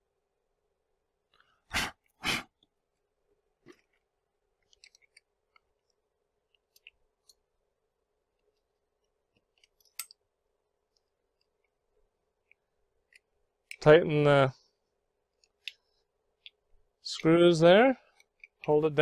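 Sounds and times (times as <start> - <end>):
faint steady hum: 0.0 - 19.0
metal clicks and taps: 9.4 - 10.2.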